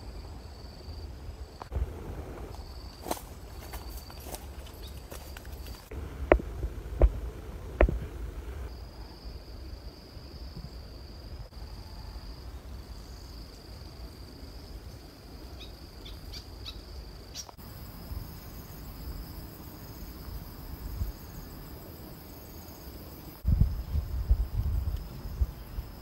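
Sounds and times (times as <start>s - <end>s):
insects droning: 0.0s - 26.0s
wind and microphone handling: 1.6s - 8.7s, 23.4s - 26.0s.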